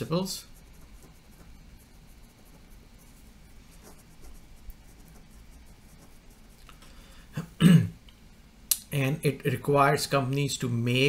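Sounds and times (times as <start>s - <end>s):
pen scratching on paper: 0.0s - 6.6s.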